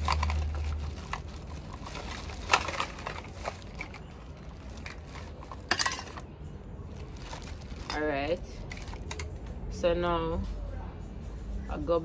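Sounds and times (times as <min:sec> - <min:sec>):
plastic bag rustling and crinkling: 0:00.0 - 0:06.3, 0:06.9 - 0:09.4.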